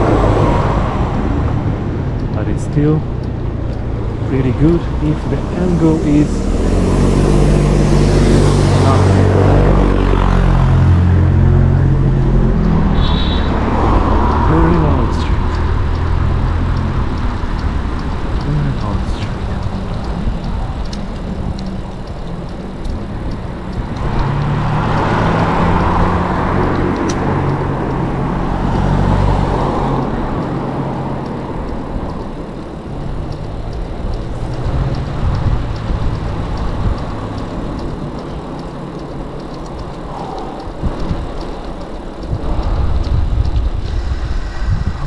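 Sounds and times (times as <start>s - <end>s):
road traffic: 0.0s - 45.0s
bicycle riding on paved path: 10.0s - 45.0s.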